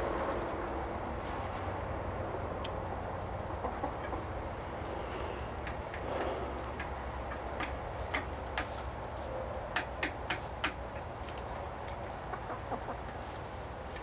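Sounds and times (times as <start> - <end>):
hens clucking softly: 2.6 - 8.8, 11.8 - 14.0.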